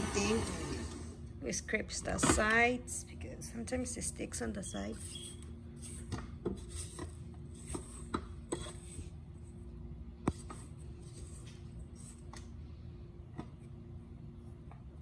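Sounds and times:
faint steady hum: 0.0s - 15.0s
spatula scraping metal bowl: 4.6s - 9.1s.

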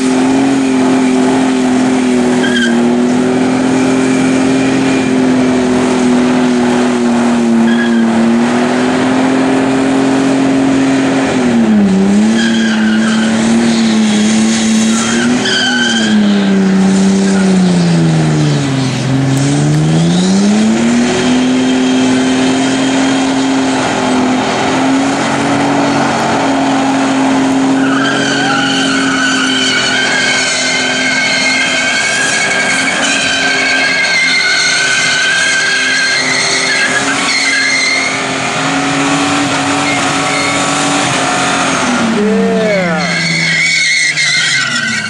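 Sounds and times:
car engine revving high: 0.0s - 45.0s
tyre squeal: 0.3s - 3.2s, 7.5s - 8.3s, 12.1s - 19.0s, 20.0s - 45.0s.

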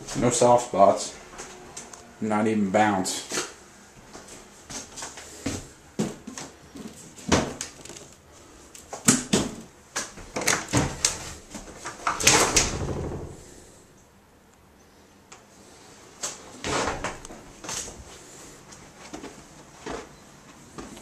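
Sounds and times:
wooden cabinet clicks and knocks: 11.9s - 13.4s.

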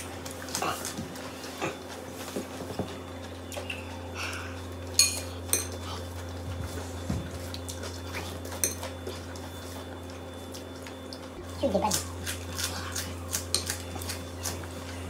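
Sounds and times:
ceramic bowl clinking: 5.0s - 5.8s.

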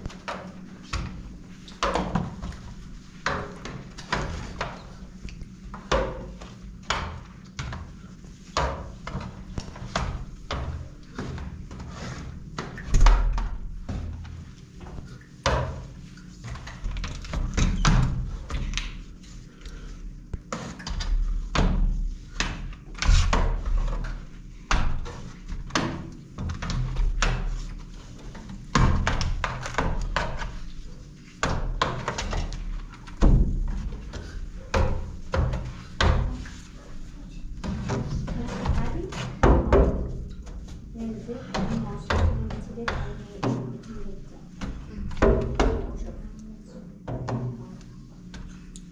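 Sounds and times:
brush knocking on glass and metal frame: 20.5s - 46.2s, 47.0s - 48.5s.

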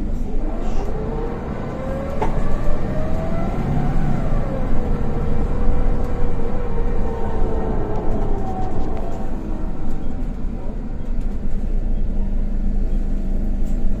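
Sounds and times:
bus whine rising in pitch: 0.0s - 14.0s
engine and road noise: 0.0s - 14.0s.

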